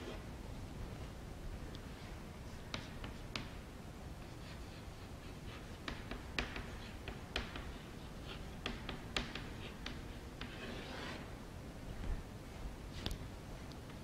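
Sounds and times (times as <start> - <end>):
chalk tapping and scratching: 2.4 - 3.6, 4.2 - 11.3
chalk scraping stroke: 4.2 - 11.3.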